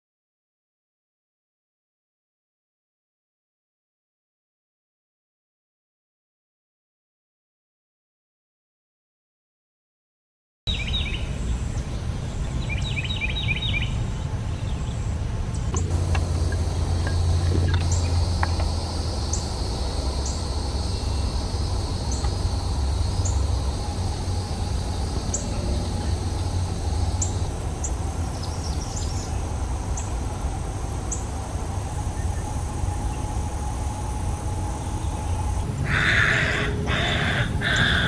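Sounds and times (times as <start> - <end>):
insect chorus: 10.7 - 14.0, 15.7 - 38.0
low steady rumble: 11.0 - 38.0.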